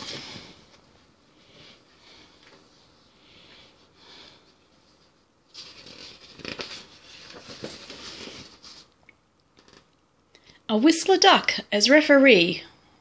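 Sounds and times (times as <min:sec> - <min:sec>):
paper page being turned: 0:05.5 - 0:09.0, 0:09.6 - 0:09.9.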